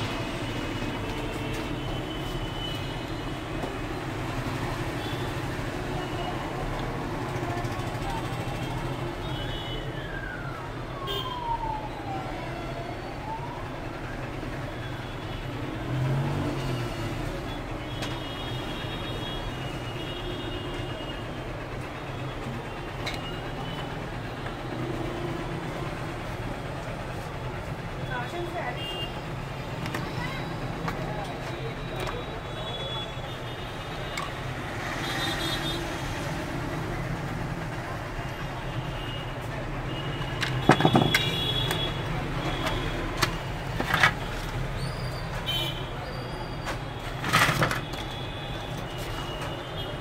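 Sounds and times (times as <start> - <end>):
siren-like wail: 9.7 - 14.7.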